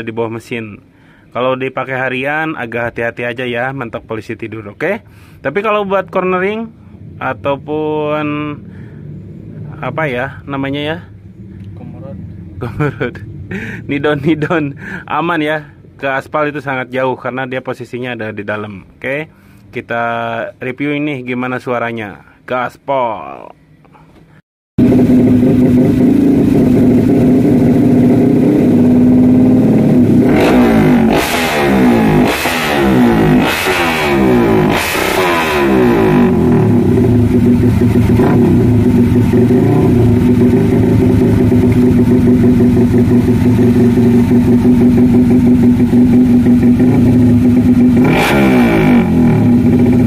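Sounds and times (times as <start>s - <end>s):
motorcycle engine idling and revving: 6.8s - 15.0s, 24.8s - 50.0s.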